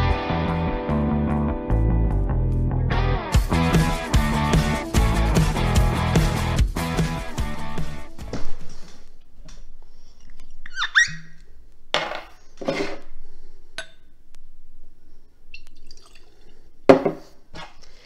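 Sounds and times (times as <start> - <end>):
cork stopper squeaking: 10.6 - 11.5
liquid pouring into glass: 15.5 - 16.6
bottle knocking on table: 16.9 - 17.2.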